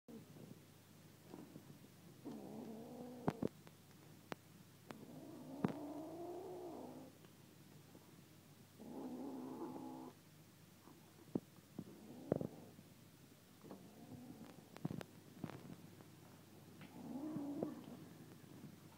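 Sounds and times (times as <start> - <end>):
kitten growling: 2.2 - 3.6, 4.9 - 7.2, 8.8 - 10.2, 11.9 - 12.8, 13.7 - 14.8, 16.8 - 18.0.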